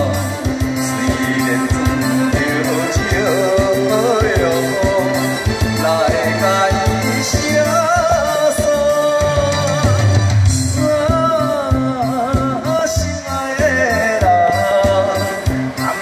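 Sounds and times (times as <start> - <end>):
karaoke backing track: 0.0 - 16.0
man singing into microphone: 0.0 - 16.0.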